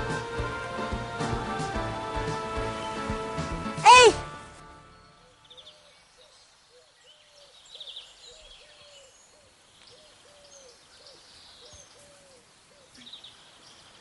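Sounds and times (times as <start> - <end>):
small birds chirping: 5.0 - 14.0.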